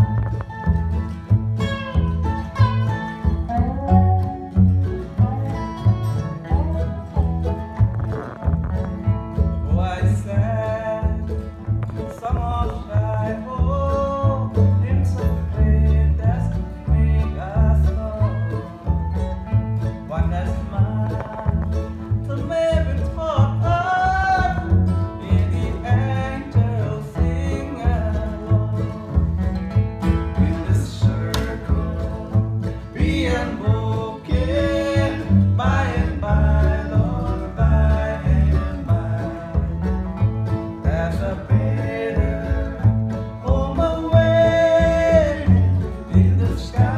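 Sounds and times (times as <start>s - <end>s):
deep bass notes: 0.0s - 46.9s
mandolin chords: 0.0s - 46.9s
resonator guitar sliding: 0.0s - 46.9s
man singing: 9.6s - 18.9s, 20.0s - 29.5s, 30.2s - 40.1s, 40.7s - 46.9s.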